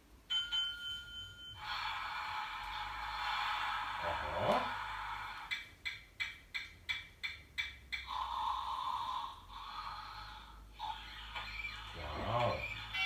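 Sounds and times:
electronic tune from small speaker: 10.8 - 13.0.

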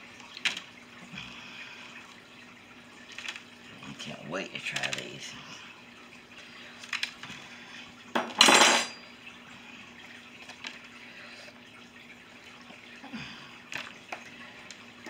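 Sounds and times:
metal spoon clattering on counter: 8.2 - 9.0.

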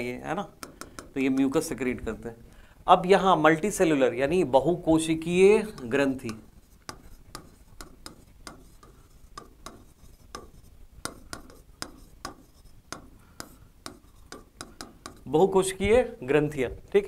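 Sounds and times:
pen tapping and scratching on board: 0.5 - 1.7, 5.5 - 15.7.

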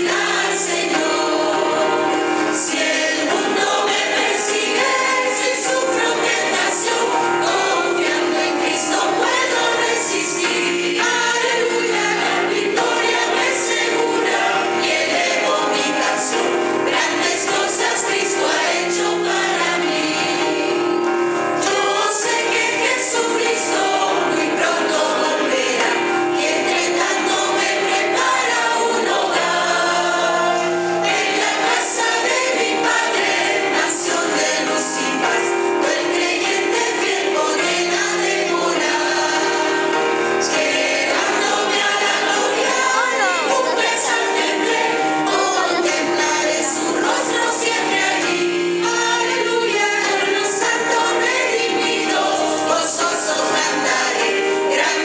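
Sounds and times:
church choir singing a hymn: 0.0 - 55.0.

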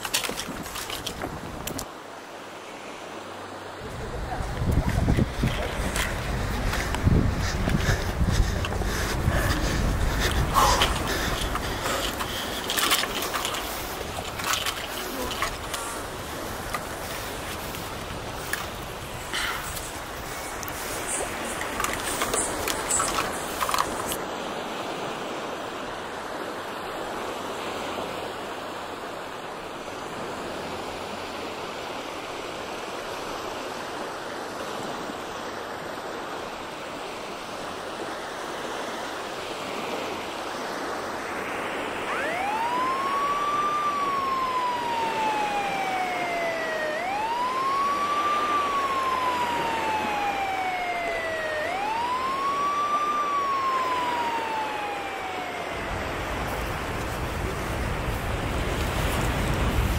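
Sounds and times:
steady rushing noise: 2.8 - 24.2
police siren wailing: 41.9 - 59.4.

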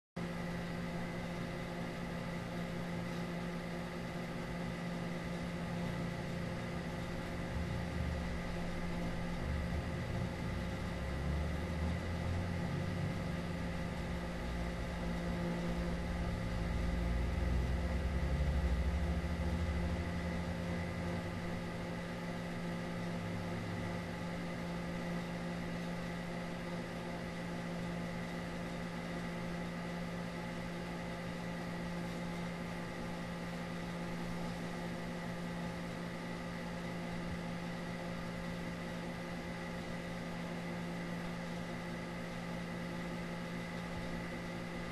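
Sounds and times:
machine hum and whir: 0.2 - 44.9
low rumble: 5.6 - 21.8.

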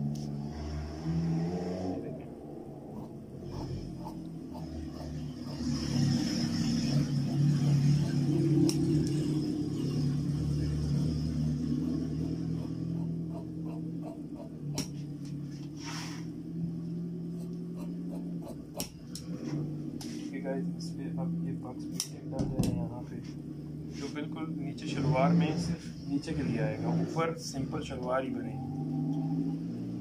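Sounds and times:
low hum and rumble: 0.0 - 30.0
scissors cutting cloth: 3.0 - 9.9, 11.9 - 15.0, 17.4 - 19.3.

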